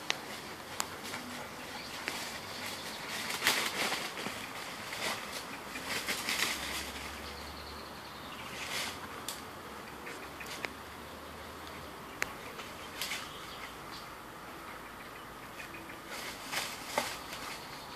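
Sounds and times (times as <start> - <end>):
dog rustling through undergrowth: 0.0 - 7.4, 8.4 - 9.2, 16.1 - 17.9.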